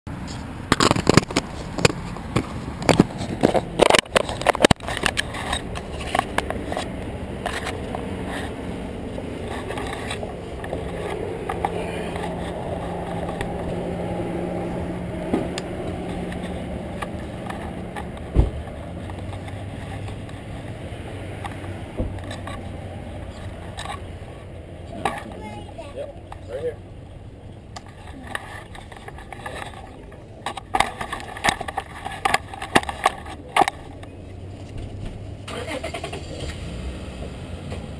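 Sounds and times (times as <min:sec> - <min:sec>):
hum of car engines: 0:00.1 - 0:37.9
camera being handled: 0:00.7 - 0:08.5
thump: 0:18.3 - 0:18.6.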